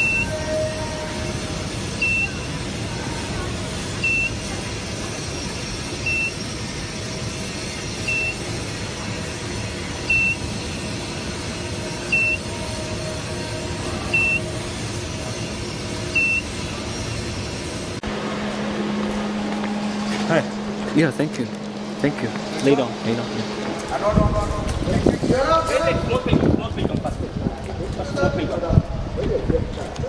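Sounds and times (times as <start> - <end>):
short high beep: 0.0 - 1.2, 18.0 - 25.3
cooling fans rushing: 0.0 - 30.0.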